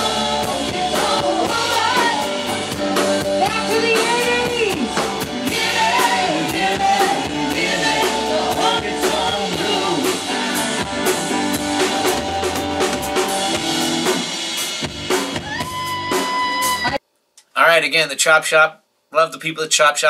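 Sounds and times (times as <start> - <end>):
woman singing: 0.0 - 10.7
drum kit rock rhythm: 0.0 - 17.0
electric guitar: 0.0 - 17.0.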